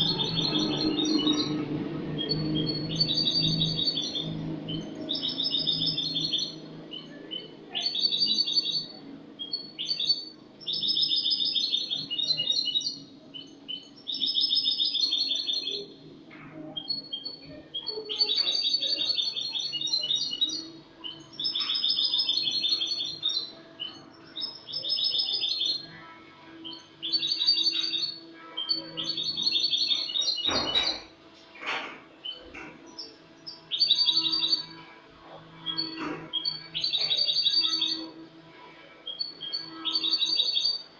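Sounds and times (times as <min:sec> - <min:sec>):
goldfinch twittering song: 0:00.0 - 0:16.0, 0:16.8 - 0:38.2, 0:39.1 - 0:40.9.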